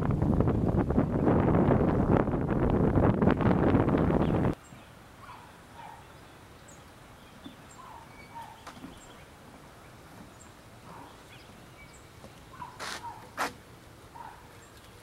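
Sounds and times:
bird chirps and calls: 0:04.2 - 0:13.2.

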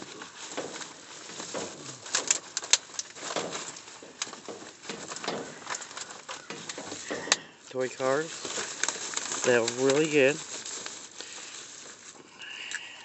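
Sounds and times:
plastic bags rustling: 0:00.0 - 0:13.0.

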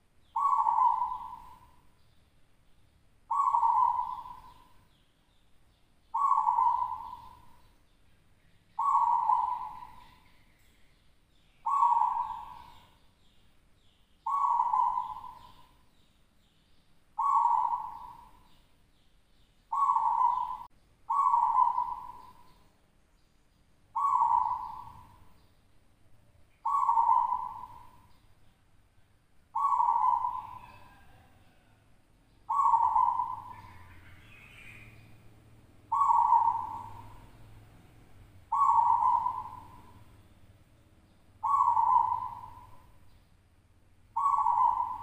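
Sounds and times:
dove cooing: 0:00.3 - 0:01.9, 0:03.3 - 0:04.9, 0:06.1 - 0:07.7, 0:08.8 - 0:10.3, 0:11.6 - 0:13.0, 0:14.2 - 0:15.8, 0:17.2 - 0:18.6, 0:19.7 - 0:22.6, 0:24.0 - 0:25.3, 0:26.6 - 0:28.1, 0:29.5 - 0:31.8, 0:32.5 - 0:35.2, 0:35.8 - 0:40.2, 0:41.4 - 0:43.0, 0:44.1 - 0:45.0.

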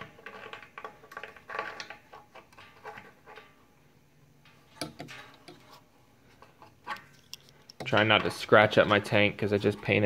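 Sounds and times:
metal tools clicking on valve: 0:07.0 - 0:08.0.

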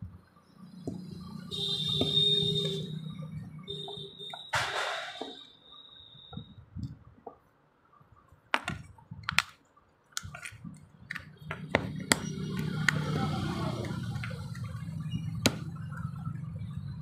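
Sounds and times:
plastic parts and screwdriver clicking: 0:08.6 - 0:13.1.

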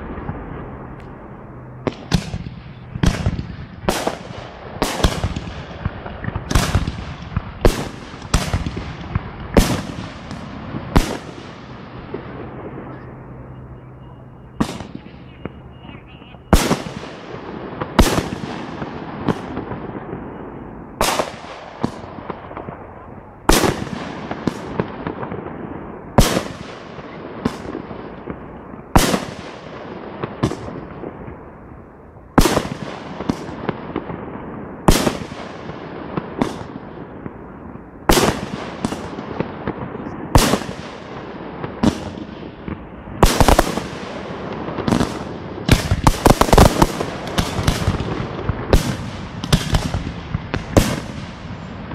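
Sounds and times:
echoing crackling tail: 0:00.0 - 0:51.9.

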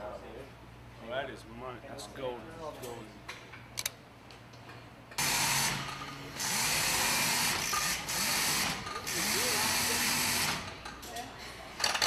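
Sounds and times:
air-powered machinery hissing: 0:05.2 - 0:10.7.

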